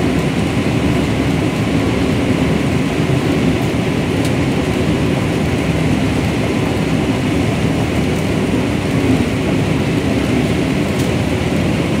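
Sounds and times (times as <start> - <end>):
combine harvester running: 0.0 - 12.0.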